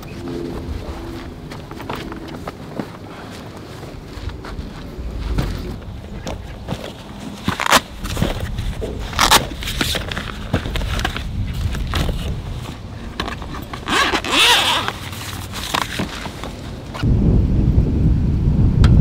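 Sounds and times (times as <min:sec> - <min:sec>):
steady low rumble: 0:00.0 - 0:07.3, 0:15.6 - 0:19.0
rustle: 0:00.1 - 0:17.2.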